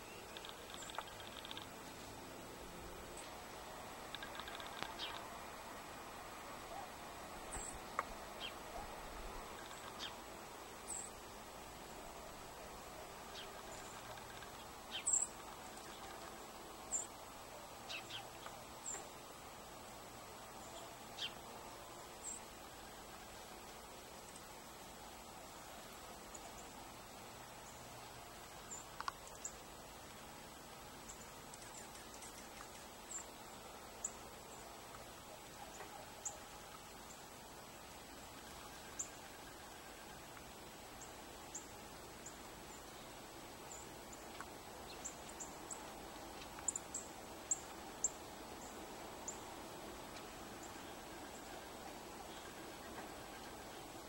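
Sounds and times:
songbirds high call notes: 0.0s - 1.7s, 4.1s - 5.4s, 12.0s - 19.1s
steady background hiss: 0.0s - 54.0s.

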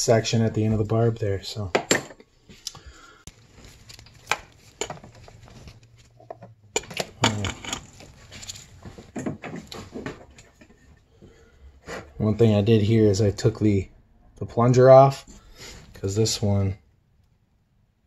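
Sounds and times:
metal parts clattering: 6.8s - 8.8s.

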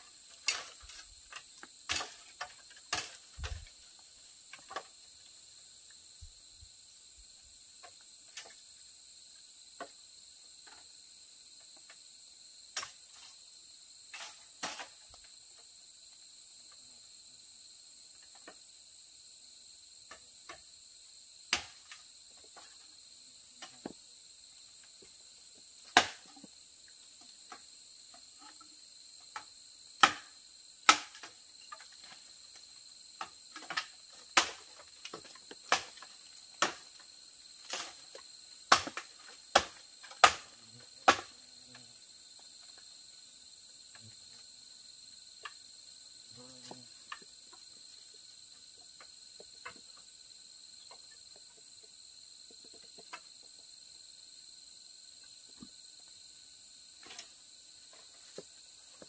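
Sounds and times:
insect chorus: 0.0s - 59.0s
bamboo knocking and creaking: 0.3s - 3.8s, 4.5s - 5.2s, 23.6s - 24.0s, 25.9s - 26.5s, 27.2s - 41.8s.

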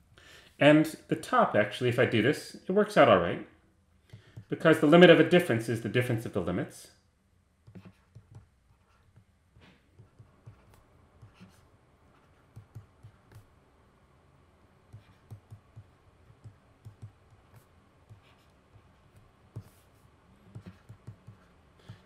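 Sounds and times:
stylus tapping on tablet: 7.7s - 9.3s, 12.4s - 13.5s, 14.9s - 19.8s, 20.4s - 22.0s.

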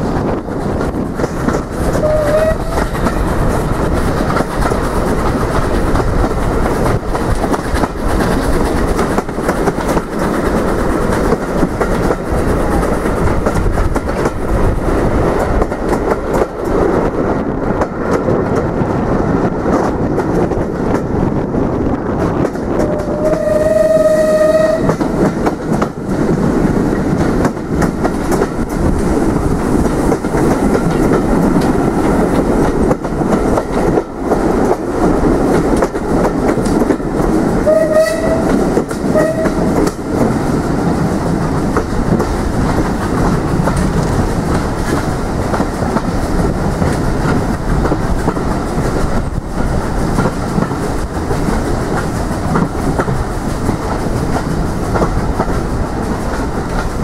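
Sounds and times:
train wheels clattering on rails: 0.0s - 57.0s
train horn: 1.9s - 3.0s, 22.8s - 25.2s, 37.6s - 39.9s.

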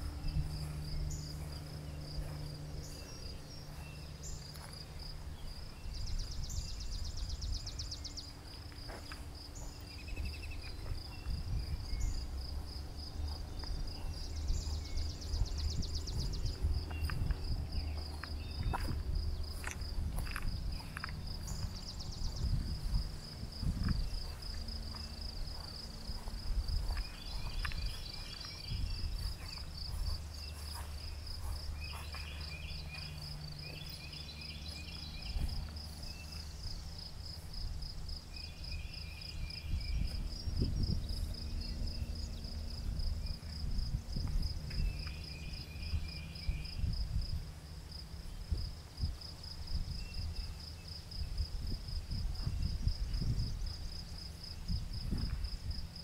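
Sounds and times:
crickets chirping: 0.0s - 56.0s
lower pulsed insect call: 0.0s - 56.0s
low rumbles and thumps: 8.8s - 33.9s, 54.7s - 55.7s.

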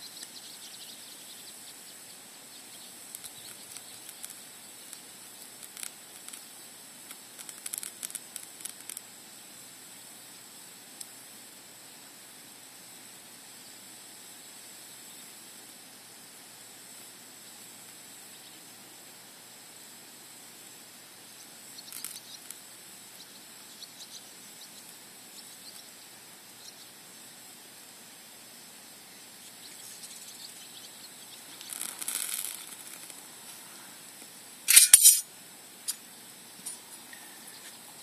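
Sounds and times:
faint steady hiss: 0.0s - 38.0s
loud sharp clatter: 34.7s - 35.2s
short scratchy burst: 34.7s - 35.2s.

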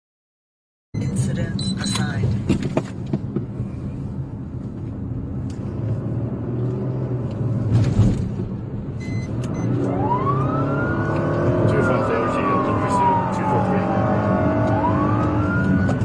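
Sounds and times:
car engine and road noise: 1.0s - 16.0s
police siren wailing: 9.7s - 16.0s.

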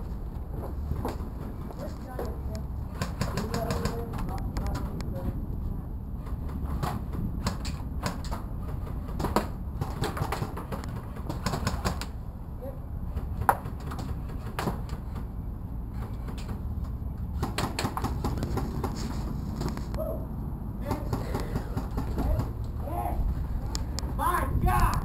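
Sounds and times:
steady low rumble: 0.0s - 9.9s, 15.0s - 25.0s
sharp clicks and taps: 2.2s - 5.1s.

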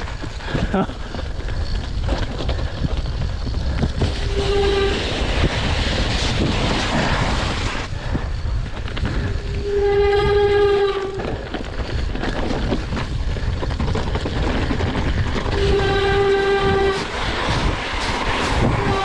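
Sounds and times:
bike tyre and frame rattle: 0.0s - 19.0s
wind rush: 0.0s - 19.0s
steady horn-like tone: 4.2s - 5.1s, 9.4s - 11.3s, 15.5s - 17.2s, 18.8s - 19.0s.

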